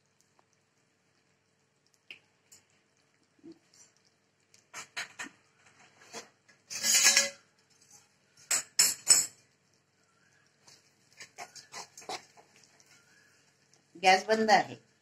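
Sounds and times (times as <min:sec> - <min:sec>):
metal spatula scraping steel pan: 0:05.8 - 0:09.2, 0:11.2 - 0:12.5.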